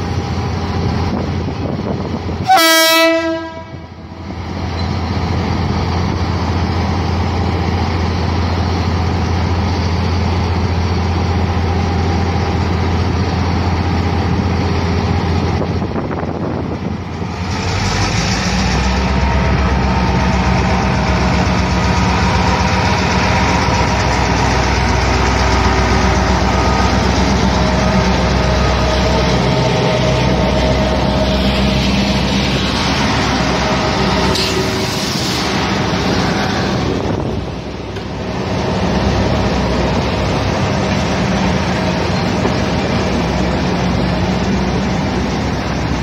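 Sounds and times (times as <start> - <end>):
diesel locomotive engine rumbling: 0.0 - 46.0.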